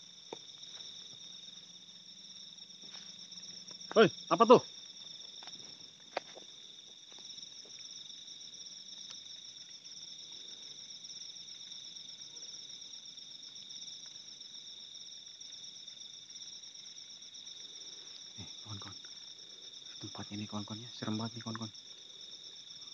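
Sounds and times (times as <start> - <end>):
crickets trilling: 0.0 - 22.9
faint ticks: 8.9 - 10.7, 13.3 - 14.3, 21.3 - 21.8.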